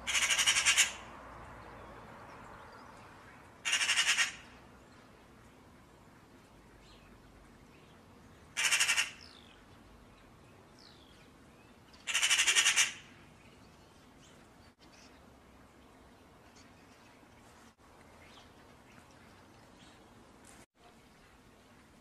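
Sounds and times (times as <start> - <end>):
magpie chattering rattle: 0.1 - 1.0, 3.6 - 4.4, 8.6 - 9.2, 12.0 - 13.0.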